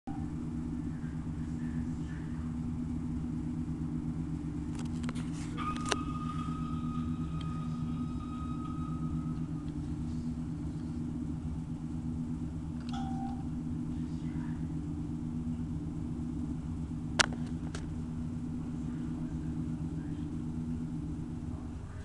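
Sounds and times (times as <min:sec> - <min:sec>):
electronic low hum: 0:00.0 - 0:22.0
thin high tone: 0:05.2 - 0:11.2, 0:12.8 - 0:14.3.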